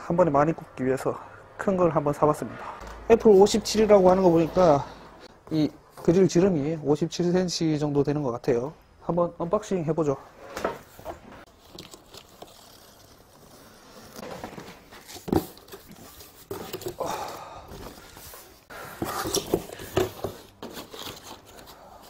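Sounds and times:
cardboard rustling and scraping: 10.4s - 22.0s.

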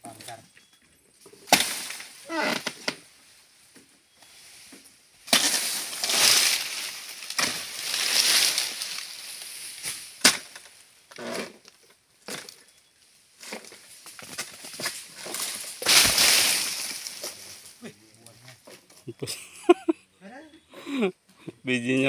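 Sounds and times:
dry leafy rustling and crashing: 1.4s - 3.2s, 5.2s - 10.9s, 13.4s - 18.6s.

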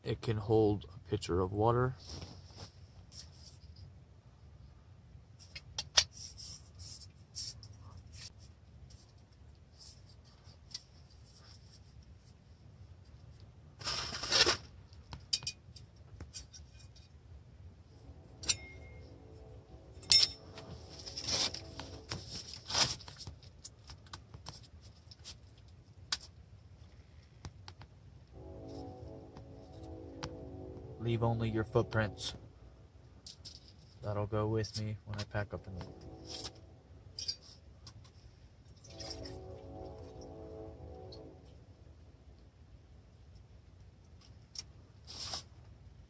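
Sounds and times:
rustle: 1.9s - 4.0s, 5.3s - 17.1s, 19.0s - 27.5s, 43.1s - 45.9s.

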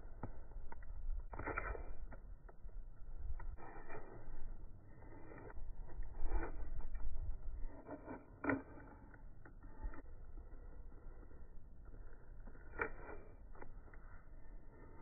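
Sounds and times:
knife scraping wood: 3.3s - 15.0s.

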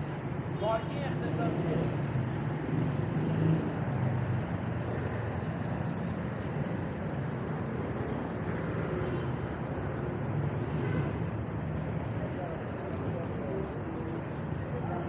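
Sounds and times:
road noise: 0.0s - 15.0s
vehicle engines humming: 0.0s - 15.0s.

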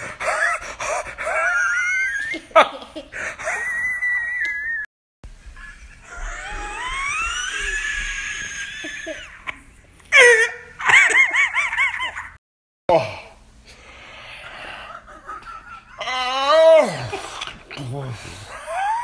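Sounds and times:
person laughing: 0.1s - 7.8s, 8.7s - 9.6s, 10.4s - 12.4s, 14.5s - 17.4s, 18.4s - 19.0s.

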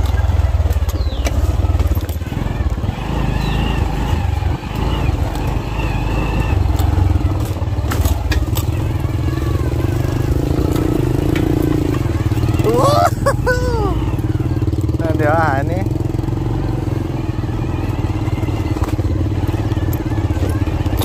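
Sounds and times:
knocks and rattles from bumps: 0.0s - 5.7s
motorbike engine at low revs: 0.0s - 21.0s.

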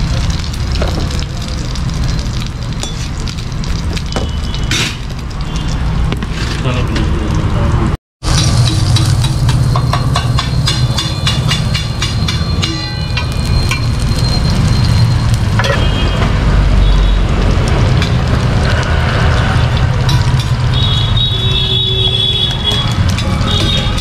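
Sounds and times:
onion frying in oil: 0.0s - 24.0s
metal ladle scraping steel griddle: 8.3s - 14.0s, 22.5s - 24.0s.

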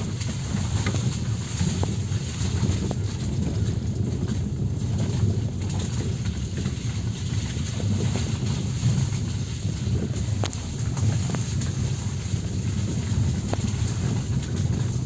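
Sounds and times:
car engine and tyres rumbling: 0.0s - 15.0s
faint ticks: 10.4s - 10.6s.

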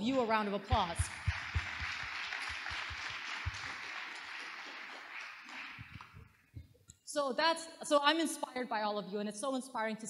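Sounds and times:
audience applause: 0.7s - 6.4s.

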